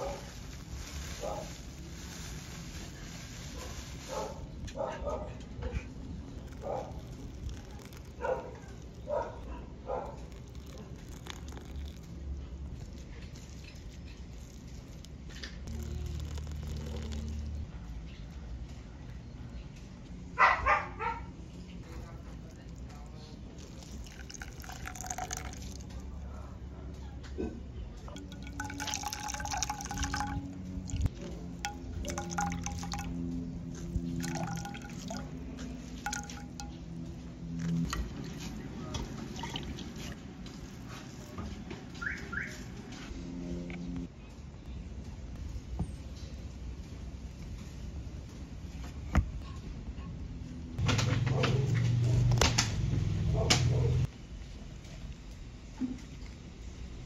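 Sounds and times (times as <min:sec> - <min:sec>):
liquid trickling and dripping: 0:06.0 - 0:18.2, 0:21.8 - 0:26.2, 0:28.1 - 0:41.4.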